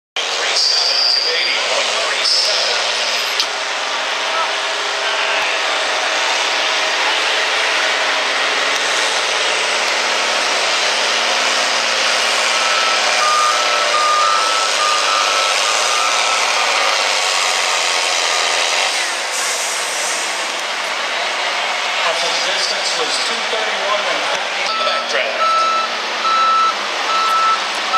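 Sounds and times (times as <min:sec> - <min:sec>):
tractor diesel engine under load: 0:00.2 - 0:27.9
short electronic beeps: 0:12.5 - 0:16.7, 0:24.7 - 0:27.6.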